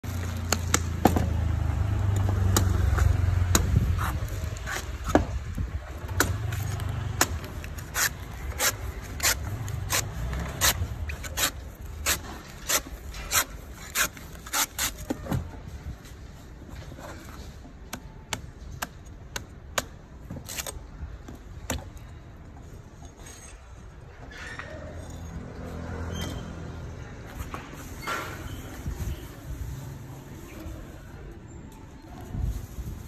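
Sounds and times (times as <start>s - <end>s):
cleaver chopping coconut husk: 2.0s - 5.3s, 6.0s - 13.4s.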